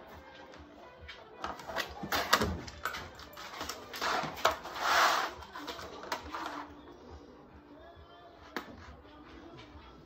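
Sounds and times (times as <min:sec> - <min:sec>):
plastic scraping on vinyl floor: 0:01.4 - 0:06.8.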